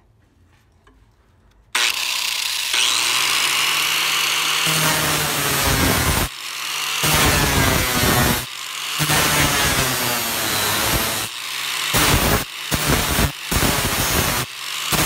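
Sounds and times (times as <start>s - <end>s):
angle grinder grinding wood: 1.8s - 15.0s
grinder motor hum: 1.8s - 15.0s.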